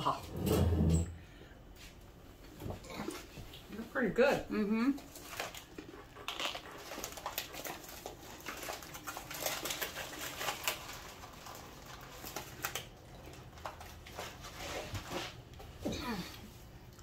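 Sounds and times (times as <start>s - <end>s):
packaging rustling and crinkling: 5.0s - 15.5s.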